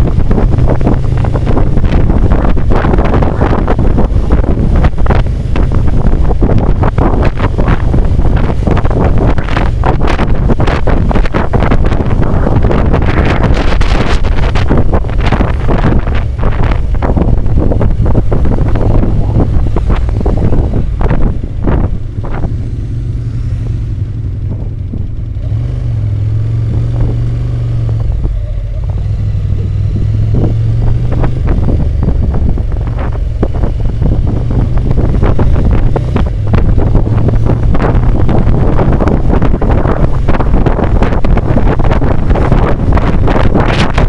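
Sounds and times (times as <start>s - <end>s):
motorcycle engine running: 0.0s - 44.0s
wind buffeting microphone: 0.0s - 44.0s.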